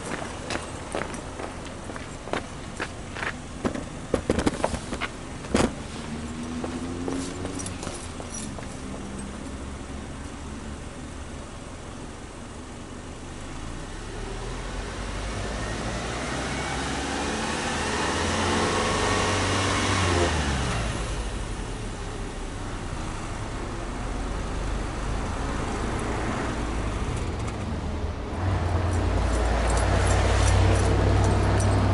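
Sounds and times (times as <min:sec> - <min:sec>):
car engine idling: 0:00.0 - 0:14.2
car engine revving: 0:03.6 - 0:10.6, 0:13.6 - 0:23.4.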